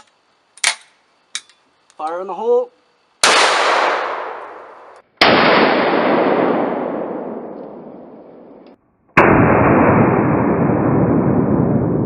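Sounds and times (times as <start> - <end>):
shotgun gunshot with rolling boom: 3.2 - 12.0.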